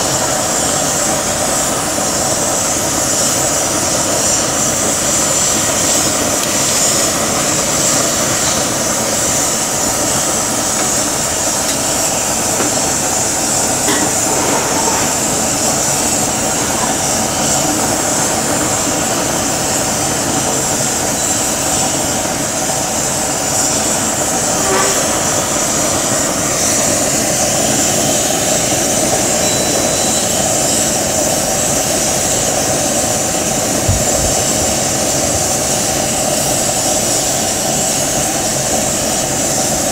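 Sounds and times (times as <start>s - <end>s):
gas flame roar: 0.0s - 39.9s.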